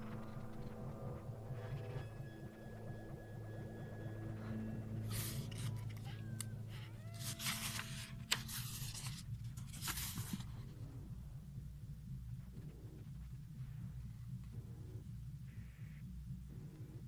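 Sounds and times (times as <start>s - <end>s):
paper pages rustling: 5.1s - 6.1s, 7.0s - 10.6s.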